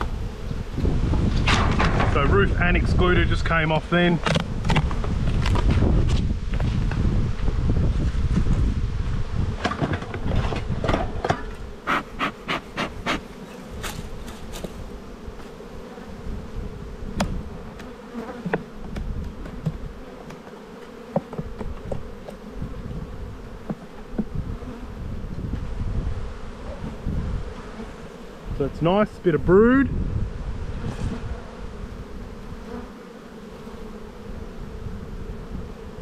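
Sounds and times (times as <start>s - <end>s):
wind rumble on microphone: 0.0s - 11.7s, 16.1s - 17.7s, 18.8s - 20.0s, 21.4s - 27.7s, 28.4s - 32.7s, 34.1s - 36.0s
bees buzzing: 0.0s - 36.0s.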